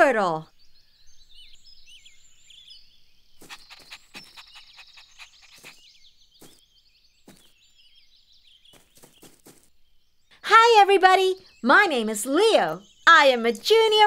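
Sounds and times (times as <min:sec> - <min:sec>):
birds chirping: 0:00.0 - 0:14.0
light footstep taps: 0:07.3 - 0:07.6, 0:08.7 - 0:09.7.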